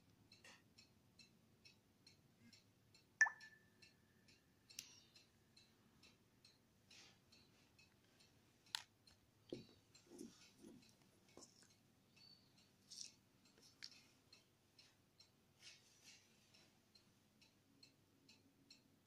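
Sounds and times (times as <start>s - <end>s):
faint regular ticking: 0.0s - 19.0s.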